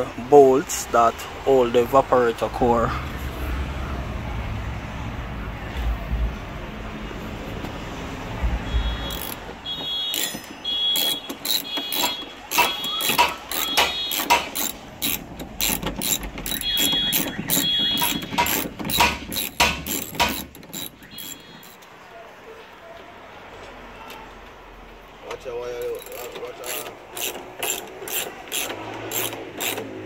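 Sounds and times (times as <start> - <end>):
ratchet wrench clicking: 9.1 - 9.5, 10.1 - 21.8, 25.8 - 30.0.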